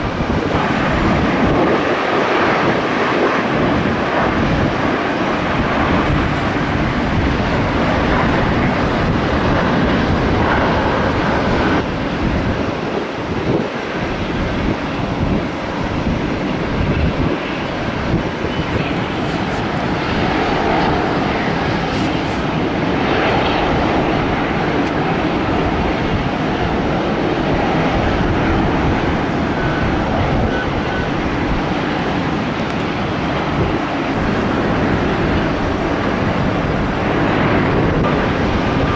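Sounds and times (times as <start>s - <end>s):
airliner engines running: 0.0s - 38.9s.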